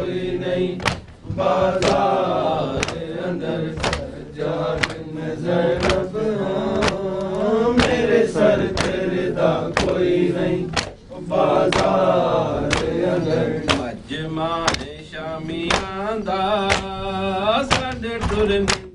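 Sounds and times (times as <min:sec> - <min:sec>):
hands beating on chests: 0:00.8 - 0:04.1, 0:04.7 - 0:05.0, 0:05.7 - 0:06.1, 0:07.7 - 0:08.1, 0:11.7 - 0:12.0, 0:12.6 - 0:13.0.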